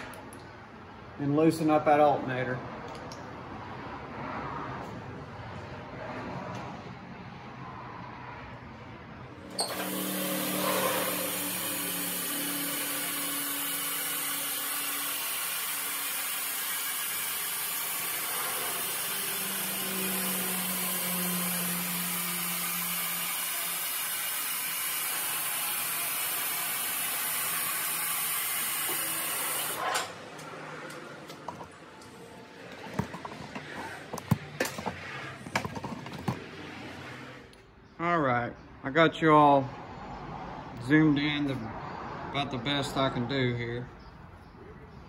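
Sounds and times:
car lift hissing: 9.4s - 30.3s.

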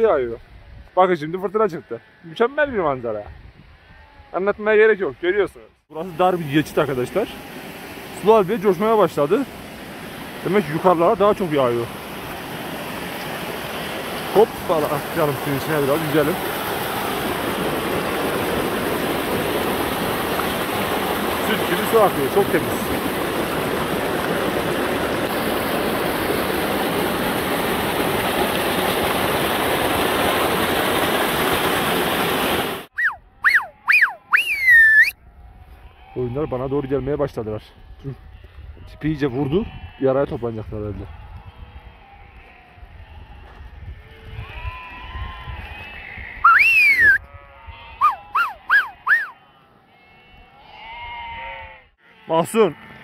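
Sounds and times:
wind buffeting microphone: 2.6s - 4.0s, 37.1s - 48.0s
sheep and lambs bleating: 3.2s - 4.6s, 35.3s - 53.0s
stream rushing: 6.0s - 32.9s
rising and falling whistle: 32.9s - 35.2s, 46.4s - 47.2s, 48.0s - 49.4s
short whistles: 32.9s - 35.2s, 46.4s - 47.2s, 48.0s - 49.4s.

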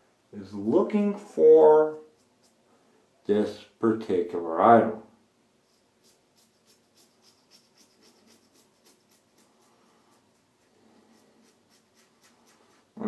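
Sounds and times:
safety razor scraping stubble: 5.7s - 10.4s, 11.0s - 12.9s.

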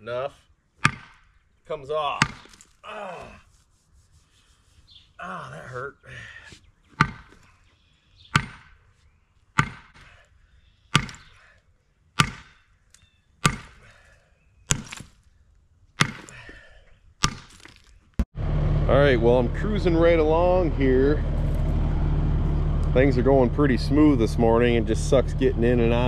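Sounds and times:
sledgehammer striking concrete: 0.8s - 1.2s, 2.1s - 2.7s, 7.0s - 7.3s, 8.4s - 8.7s, 9.6s - 10.0s, 11.0s - 11.3s, 12.2s - 12.6s, 13.4s - 13.8s, 14.7s - 15.1s, 16.0s - 16.4s, 17.2s - 17.8s.

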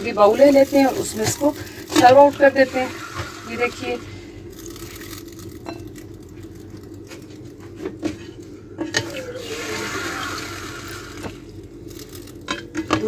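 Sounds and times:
steady low hum: 0.0s - 13.0s
broth splashing and pouring: 0.4s - 5.6s, 9.3s - 12.3s.

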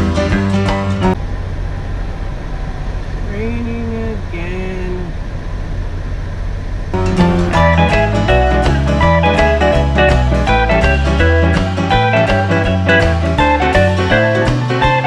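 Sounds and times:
music: 0.0s - 1.2s, 7.0s - 15.0s
diesel truck engine idling: 0.0s - 15.0s
person speaking: 3.2s - 5.2s.

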